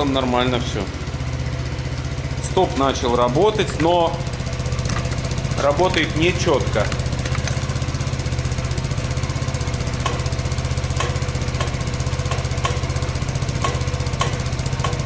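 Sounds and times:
motorcycle engine idling: 0.0s - 15.0s.

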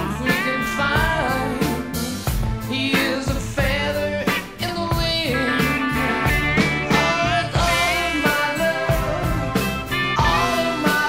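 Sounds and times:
steady drum beat: 0.0s - 11.0s
electric guitar bending notes: 3.7s - 11.0s.

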